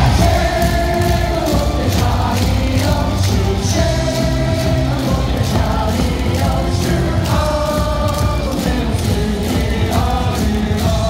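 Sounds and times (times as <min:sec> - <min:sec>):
cheer song over loudspeakers: 0:00.0 - 0:11.0
crowd singing along: 0:00.0 - 0:11.0.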